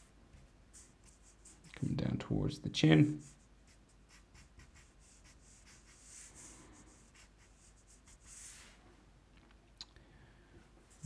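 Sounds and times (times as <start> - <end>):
marker scratching on paper: 0.0 - 1.8, 3.2 - 8.8.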